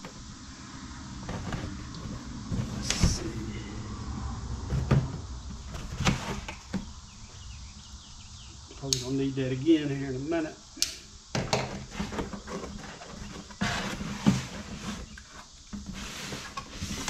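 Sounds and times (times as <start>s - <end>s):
cardboard box sliding on wood: 1.2s - 3.4s, 11.8s - 17.0s.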